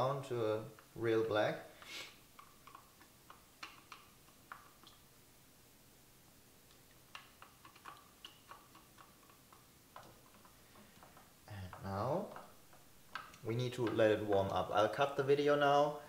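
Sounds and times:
stick tapping plastic tub: 7.2 - 15.2.

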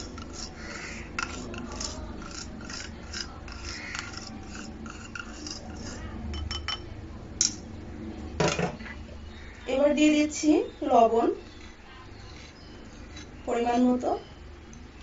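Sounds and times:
spoon scraping ceramic bowl: 0.0 - 6.8, 11.1 - 14.3.

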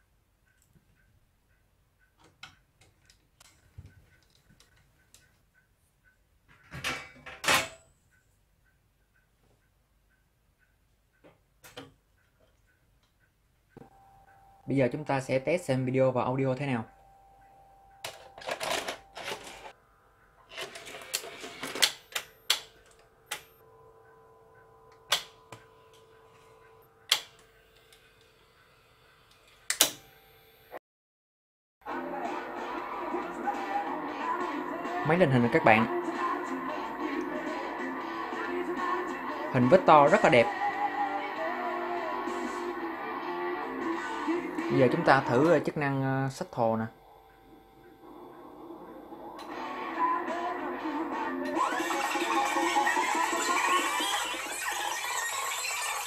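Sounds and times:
faint steady ticking: 0.0 - 6.7, 8.0 - 14.8
faint steady hum: 7.8 - 30.7, 40.4 - 51.5.

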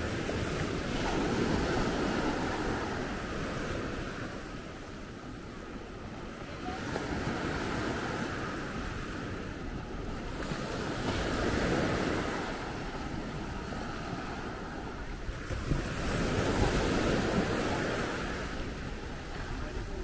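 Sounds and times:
sea waves washing in: 0.0 - 20.0.

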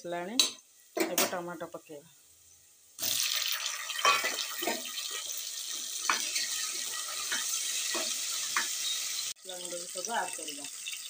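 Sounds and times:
food sizzling in hot oil: 0.0 - 11.0
spatula scraping and knocking pot: 5.8 - 8.9.

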